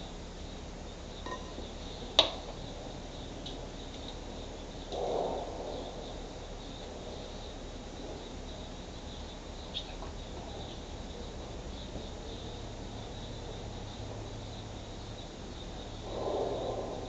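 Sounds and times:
insect chirping trill: 0.0s - 17.0s.

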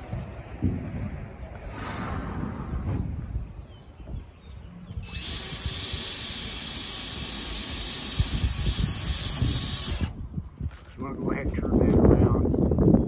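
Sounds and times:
wind rumbling on microphone: 0.0s - 13.0s
cordless drill driving screws: 5.0s - 10.2s.

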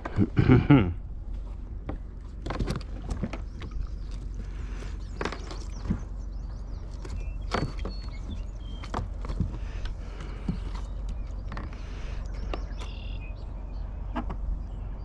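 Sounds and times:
low rumble: 0.0s - 15.0s
knocks and splashes on kayak: 1.3s - 12.8s.

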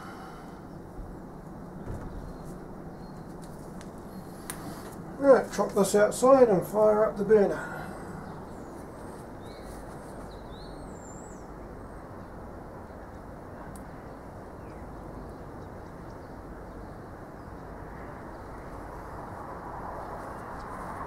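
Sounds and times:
steady rushing noise: 0.0s - 10.5s, 16.4s - 21.0s.

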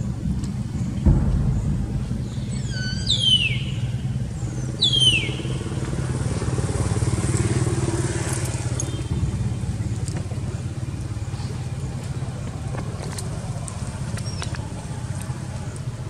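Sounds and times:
engine humming: 0.0s - 16.0s
high falling whistles: 1.2s - 5.6s.

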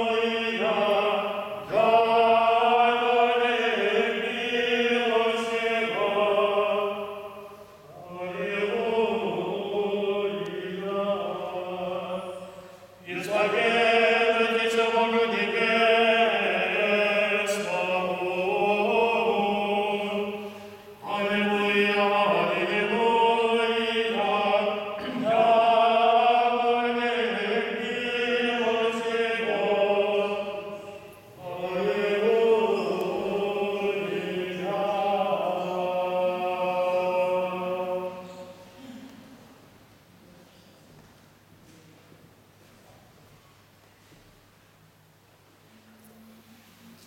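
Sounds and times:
men singing a cappella chant: 0.0s - 38.5s.

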